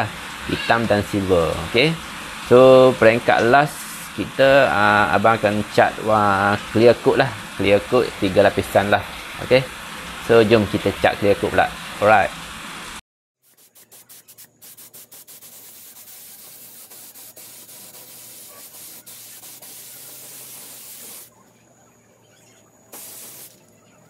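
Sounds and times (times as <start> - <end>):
paint spray hiss: 13.4 - 21.3, 22.9 - 23.7.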